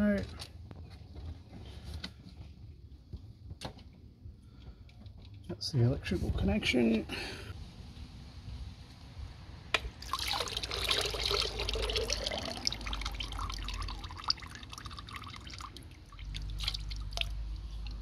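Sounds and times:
fuel pouring and dripping: 0:09.8 - 0:18.0.

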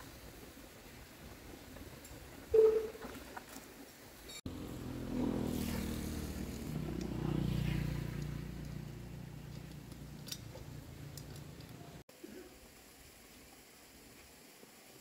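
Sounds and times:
small engine pulsing drone: 0:04.5 - 0:10.2.

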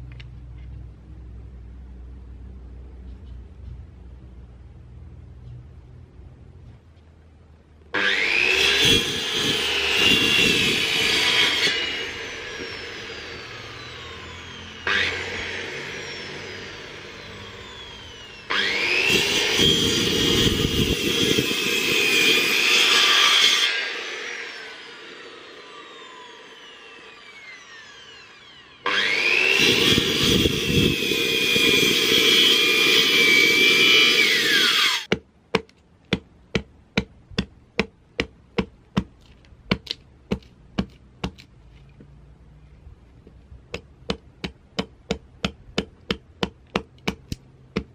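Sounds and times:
circular saw cutting wood: 0:07.9 - 0:35.1
saw blade whining down: 0:07.9 - 0:35.1
machete chopping wood: 0:35.1 - 0:41.4, 0:43.8 - 0:47.9.

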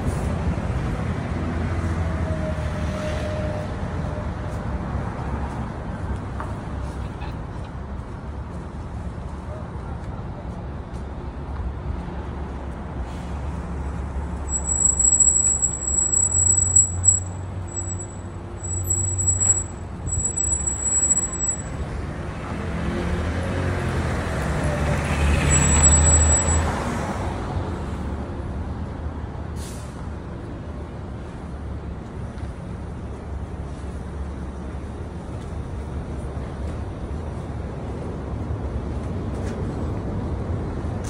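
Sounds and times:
heavy vehicle engine rumble: 0:03.4 - 0:41.0
high-pitched squeal: 0:14.4 - 0:21.8, 0:25.2 - 0:26.8.

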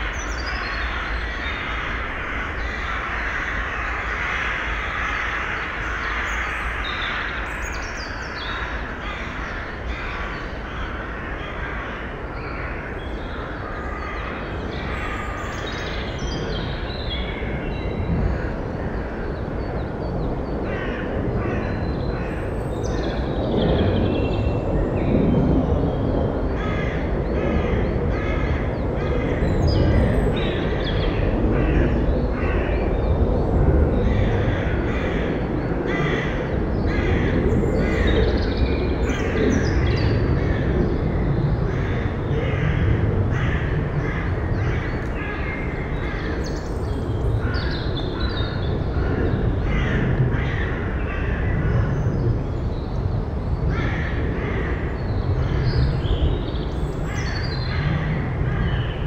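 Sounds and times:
steady background rumble: 0:00.0 - 0:59.0.

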